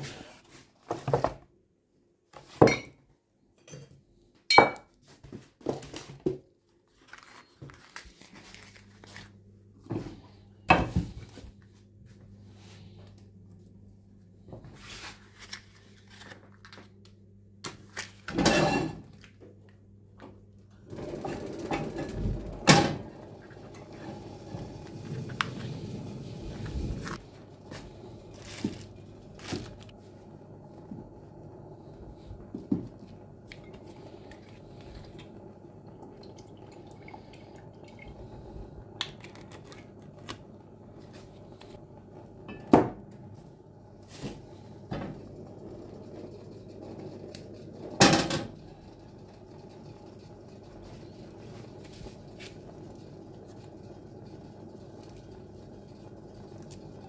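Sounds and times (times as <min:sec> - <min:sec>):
steady low hum: 0:19.8 - 0:57.0.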